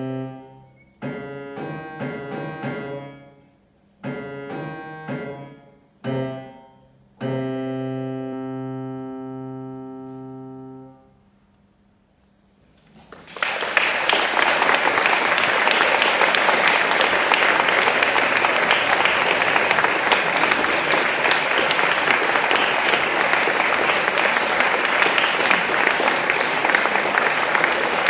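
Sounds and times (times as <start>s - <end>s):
audience applause: 12.9s - 28.0s.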